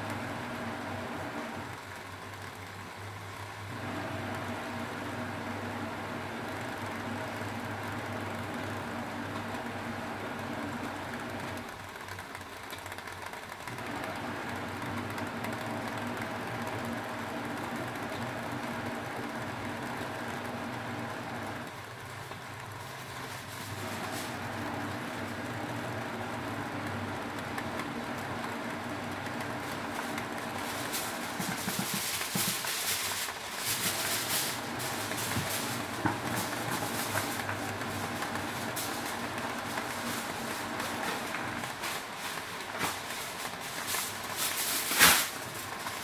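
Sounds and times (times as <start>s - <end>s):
gas burner rumbling: 0.0s - 46.0s
fish sizzling in foil: 29.8s - 45.7s.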